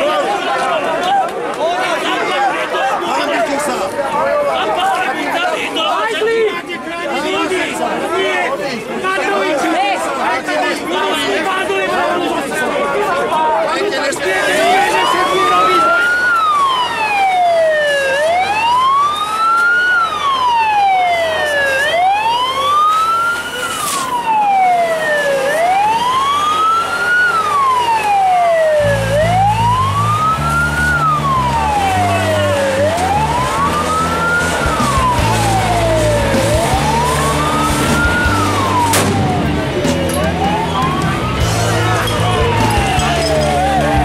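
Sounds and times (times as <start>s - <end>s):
police siren wailing: 14.3s - 44.0s.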